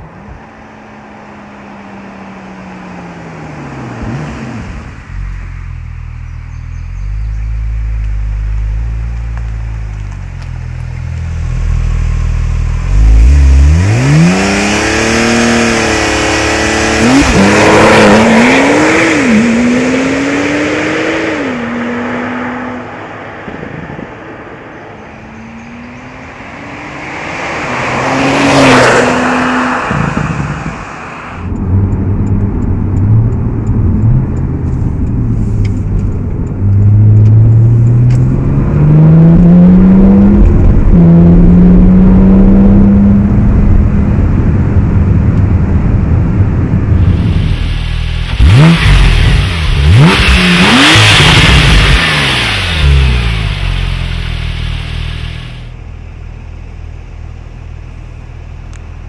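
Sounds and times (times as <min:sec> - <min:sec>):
sports car engine accelerating: 0:00.0 - 0:59.0
car passing at speed: 0:13.6 - 0:33.6, 0:47.0 - 0:55.7.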